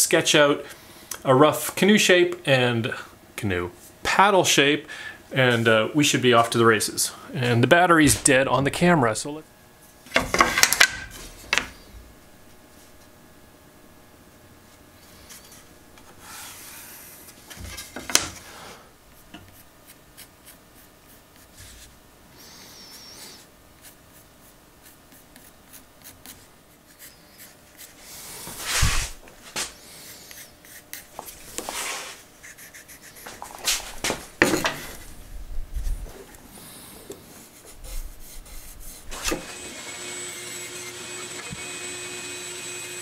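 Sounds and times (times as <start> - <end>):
pencil scratching on wood: 22.8 - 28.0, 30.2 - 33.6.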